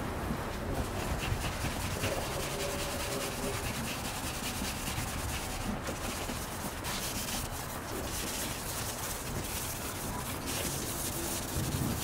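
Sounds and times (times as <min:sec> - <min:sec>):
scuff pad rubbing wheel: 0:00.8 - 0:12.0.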